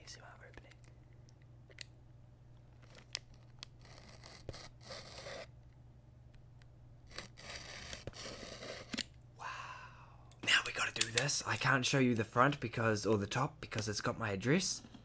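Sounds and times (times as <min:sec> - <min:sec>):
knife slicing through packing tape: 0:03.8 - 0:05.5, 0:07.1 - 0:09.1.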